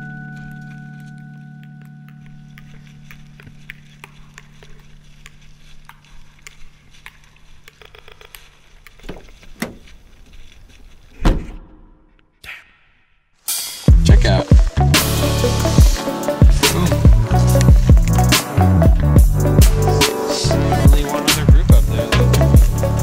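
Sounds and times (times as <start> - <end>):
footsteps crunching on snow: 0.0 - 11.2.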